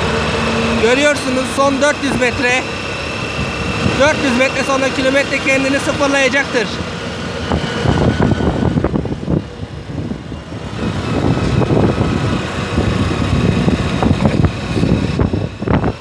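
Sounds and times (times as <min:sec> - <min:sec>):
motorcycle engine running: 0:00.0 - 0:16.0
wind noise on microphone: 0:03.2 - 0:04.2, 0:07.2 - 0:16.0.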